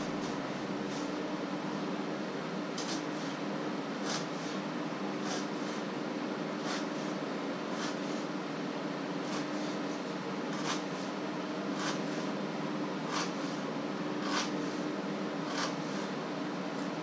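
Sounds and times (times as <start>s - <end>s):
steady hum: 0.0s - 17.0s
knife cutting on wooden board: 4.0s - 4.6s, 5.2s - 5.8s, 6.6s - 7.1s, 7.7s - 8.2s, 9.3s - 9.8s, 10.5s - 11.1s, 11.8s - 12.3s, 13.1s - 13.6s, 14.2s - 14.8s, 15.5s - 16.1s.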